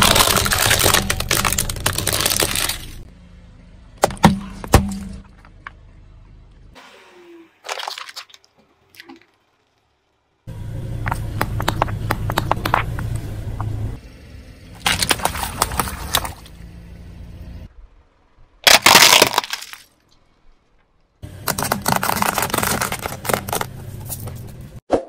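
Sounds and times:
plastic toy crashing: 0:00.0 - 0:03.0, 0:18.6 - 0:19.9, 0:21.4 - 0:23.8
sharp cracks: 0:00.0 - 0:03.0, 0:18.6 - 0:20.0
tyre rumbling: 0:10.7 - 0:14.0, 0:21.4 - 0:24.8.

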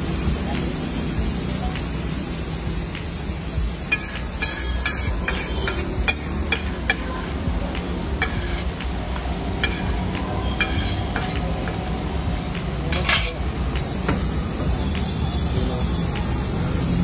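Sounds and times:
food sizzling: 0:00.0 - 0:17.0
metal spatula scraping griddle: 0:03.9 - 0:07.4, 0:08.2 - 0:08.8, 0:09.6 - 0:11.5, 0:12.9 - 0:13.4.

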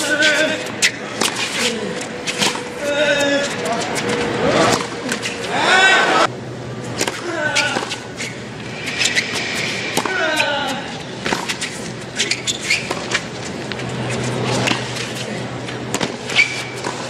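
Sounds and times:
tennis racket strokes: 0:00.0 - 0:05.8, 0:06.8 - 0:17.0
sneaker squeaks: 0:00.0 - 0:06.1, 0:06.8 - 0:17.0
tennis ball bounces: 0:15.9 - 0:17.0.

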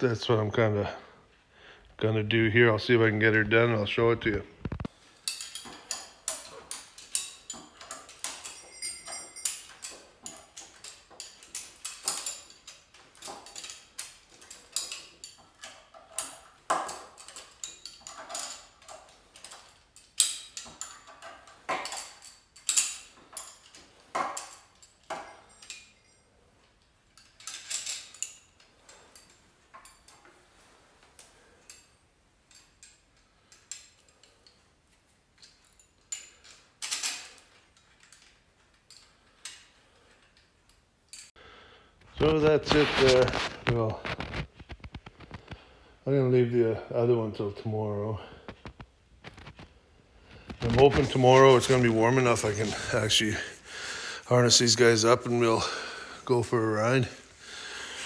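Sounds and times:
metal harness fittings clinking: 0:04.9 - 0:41.3, 0:50.4 - 0:58.0.

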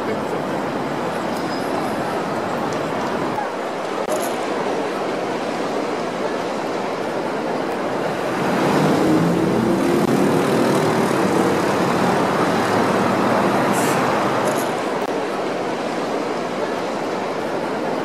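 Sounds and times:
road traffic: 0:00.0 - 0:18.0
vehicle engine hum passing: 0:08.1 - 0:14.9.

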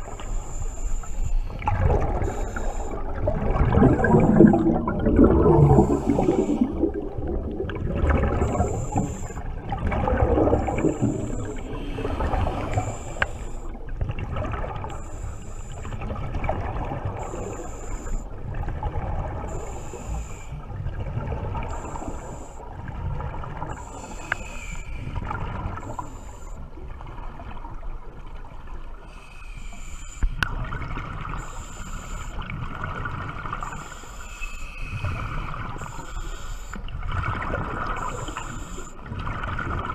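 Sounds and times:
regulator inhale hiss: 0:00.0 - 0:03.3, 0:05.7 - 0:06.9, 0:08.4 - 0:09.5, 0:10.7 - 0:13.9, 0:14.8 - 0:16.0, 0:17.2 - 0:18.4, 0:19.5 - 0:20.6, 0:21.6 - 0:22.7, 0:23.7 - 0:26.8, 0:29.0 - 0:30.5, 0:31.4 - 0:32.5, 0:33.6 - 0:37.0, 0:37.9 - 0:39.1
exhaled bubbles gurgling underwater: 0:00.0 - 0:39.9.

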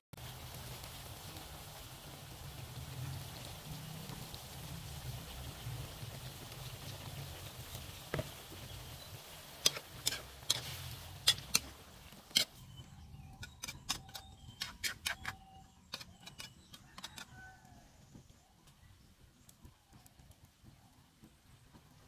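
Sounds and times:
metal ladle scraping wok: 0:09.6 - 0:17.4.

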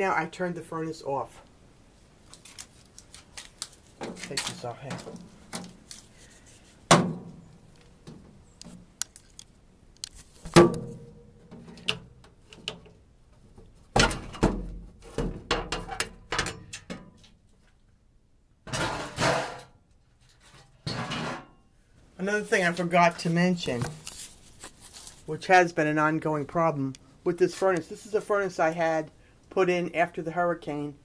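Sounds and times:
metal panel knocks and thunks: 0:06.9 - 0:07.4, 0:10.5 - 0:11.7, 0:13.9 - 0:17.1.

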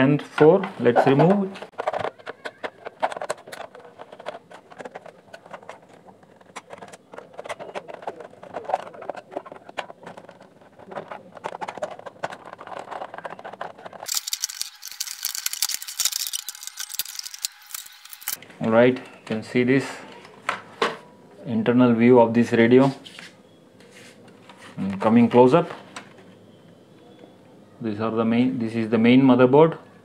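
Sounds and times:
clicks and rattles of handling: 0:00.4 - 0:19.4
plastic cover scraping rattle: 0:01.3 - 0:18.4
screwdriver turning screws: 0:14.0 - 0:18.4.

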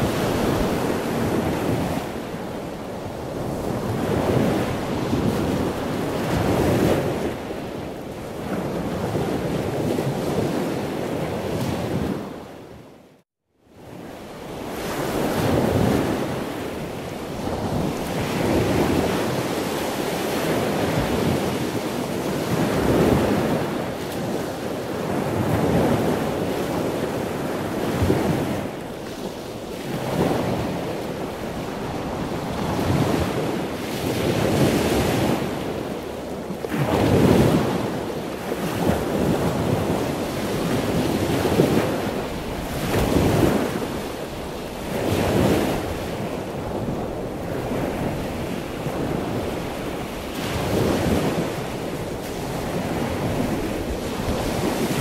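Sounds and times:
wind buffeting microphone: 0:00.0 - 0:12.9, 0:13.8 - 0:55.0
choppy sea rushing: 0:00.0 - 0:55.0.

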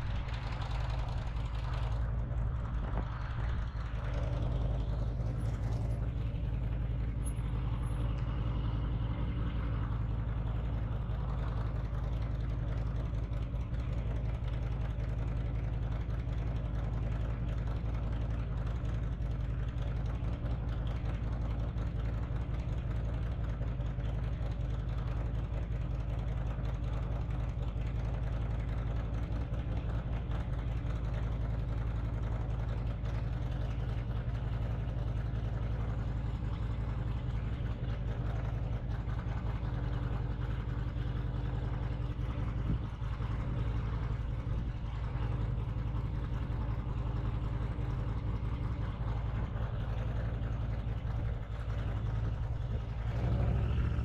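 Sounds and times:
motorcycle engine idling: 0:00.0 - 0:54.0.

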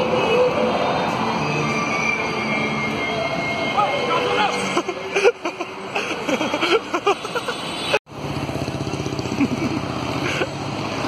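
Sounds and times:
roadside traffic: 0:00.0 - 0:11.0
voices of passers-by: 0:00.0 - 0:11.0
vehicle engine running: 0:08.1 - 0:11.0.

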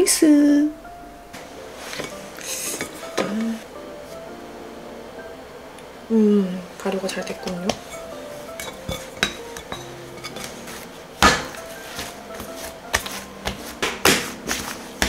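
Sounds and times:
dough pressed by hand: 0:07.4 - 0:15.0.

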